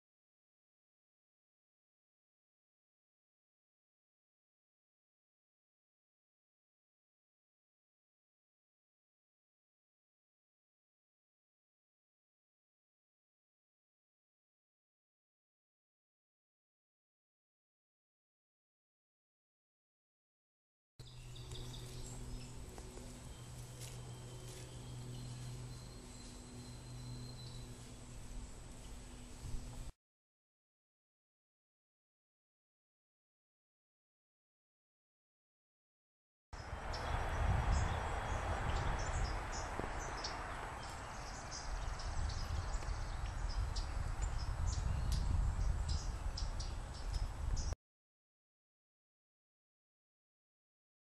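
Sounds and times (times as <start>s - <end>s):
faint bird chirps: 21.0s - 29.9s
songbirds chirping: 21.0s - 29.9s, 36.6s - 47.8s
steady low hum: 21.0s - 29.9s
wind noise rumble: 27.6s - 29.9s, 36.6s - 47.8s.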